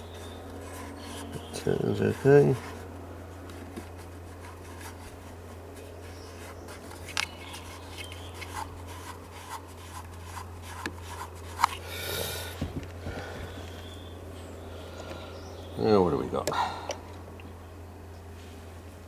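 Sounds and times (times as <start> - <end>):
steady low hum: 0.0 - 19.0
small clicks and rubbing: 3.4 - 11.8.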